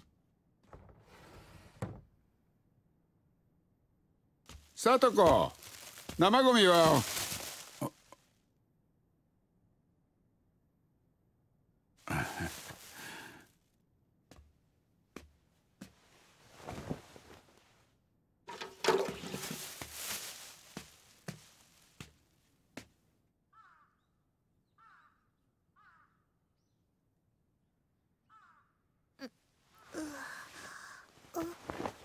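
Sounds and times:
crow cawing: 23.5s - 24.2s, 24.8s - 26.4s, 28.3s - 28.9s.

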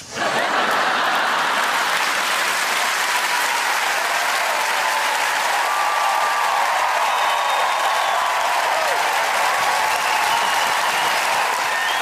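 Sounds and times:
audience applauding: 0.2s - 12.0s.

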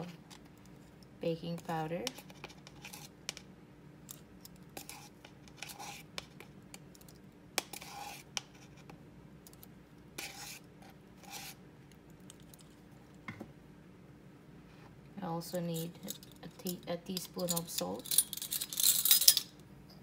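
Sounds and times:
spoon scraping: 2.0s - 3.2s, 4.1s - 8.9s, 10.2s - 11.6s.

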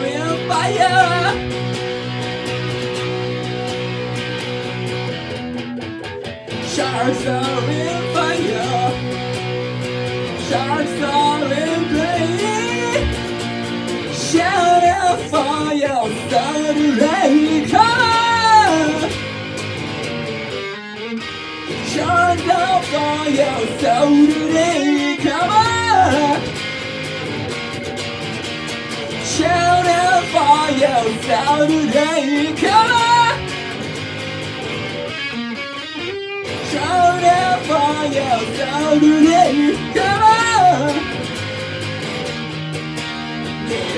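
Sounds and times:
man singing: 0.0s - 1.6s, 6.5s - 9.3s, 10.2s - 13.3s, 14.0s - 19.2s, 21.7s - 26.5s, 29.1s - 33.6s, 36.5s - 41.2s, 43.7s - 43.9s
electric guitar playing: 0.0s - 43.9s.

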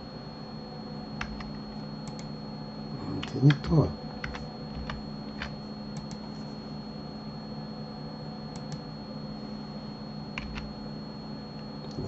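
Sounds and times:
low room and microphone hum: 0.0s - 12.0s
keyboard and mouse clicks: 1.2s - 2.3s, 3.2s - 6.2s, 10.4s - 10.7s.

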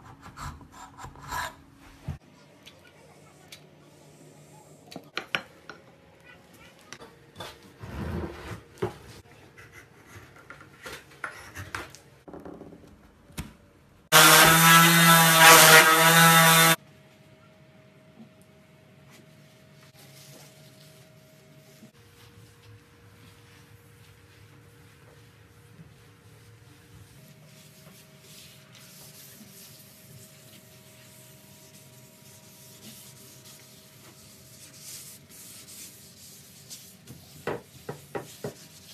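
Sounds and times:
hand sanding and scraping wood: 14.1s - 16.8s, 20.0s - 38.9s.

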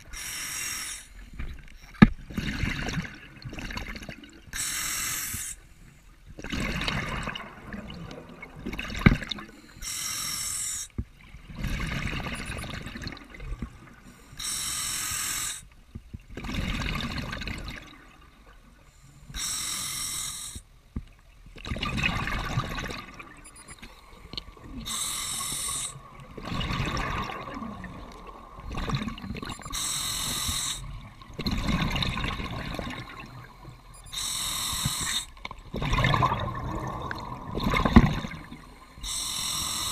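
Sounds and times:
diver inhaling through regulator: 0.1s - 1.3s, 4.6s - 5.7s, 9.6s - 10.9s, 14.1s - 15.7s, 19.0s - 20.7s, 23.5s - 26.1s, 29.5s - 31.0s, 33.1s - 35.4s, 38.7s - 39.9s
exhaled bubbles hissing: 14.3s - 15.7s, 19.3s - 20.6s, 21.7s - 39.9s.

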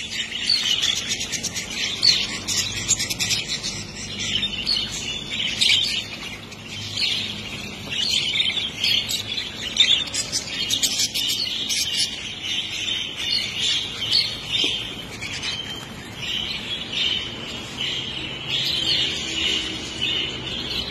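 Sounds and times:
budgerigars chattering: 0.0s - 20.9s.

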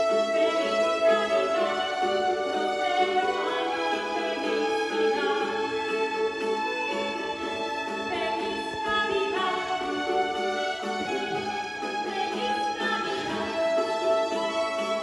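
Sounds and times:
person singing: 0.0s - 6.3s, 7.9s - 15.0s
violin ensemble playing: 0.0s - 15.0s.

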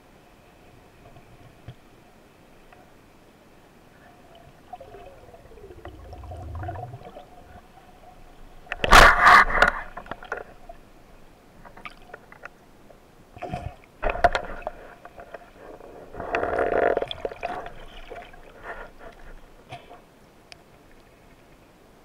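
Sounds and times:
underwater gurgling: 3.9s - 10.9s
underwater clicks and knocks: 8.7s - 10.6s, 13.5s - 15.5s.

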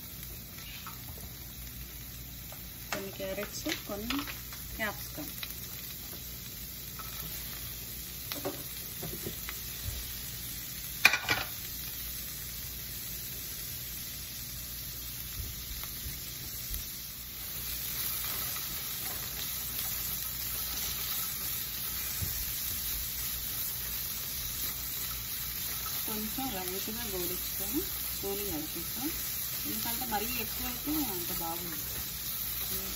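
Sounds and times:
vegetables sizzling in oil: 0.0s - 32.9s
vegetable pieces knocking in pan: 8.3s - 9.9s, 11.0s - 11.6s.

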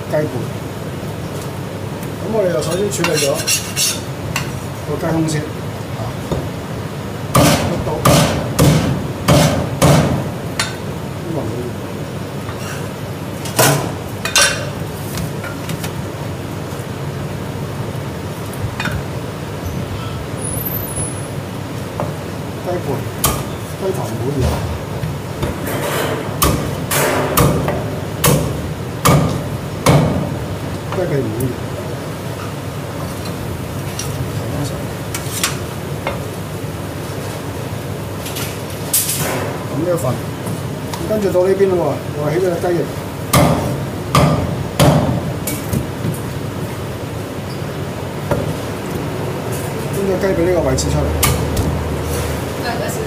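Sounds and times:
cleaver chopping on wooden block: 7.4s - 10.2s.

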